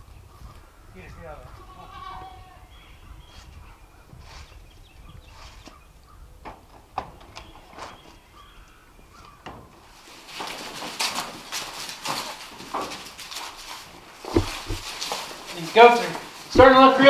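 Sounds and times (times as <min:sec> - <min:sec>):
goats bleating: 0:01.4 - 0:02.7
rustling and scuffling: 0:06.5 - 0:17.0
sharp knock: 0:14.3 - 0:14.9.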